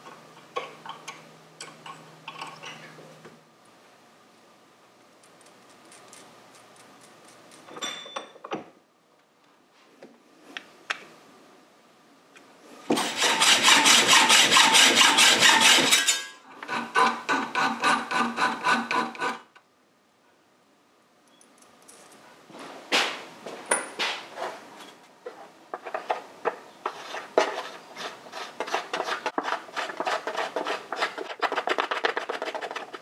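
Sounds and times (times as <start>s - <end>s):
saw rasping across metal rod: 13.0s - 19.5s.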